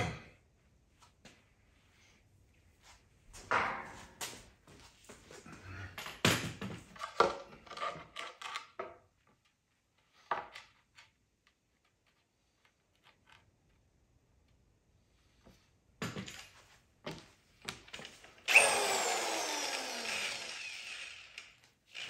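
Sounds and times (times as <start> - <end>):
tools clattering on concrete floor: 3.4 - 4.8, 5.6 - 9.0, 16.0 - 18.3.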